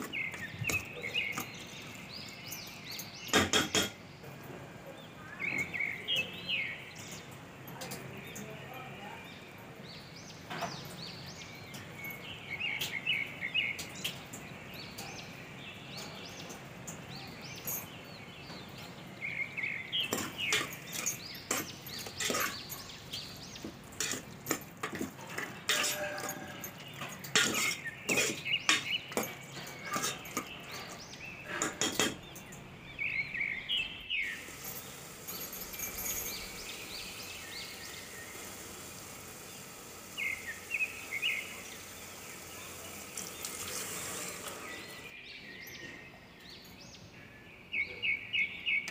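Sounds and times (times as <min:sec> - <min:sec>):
birds chirping: 0:00.0 - 0:48.9
spoon stirring in metal pot: 0:20.1 - 0:32.5.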